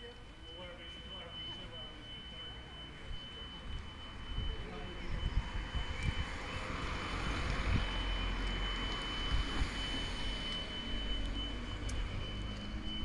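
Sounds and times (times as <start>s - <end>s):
wind on microphone: 3.8s - 10.4s.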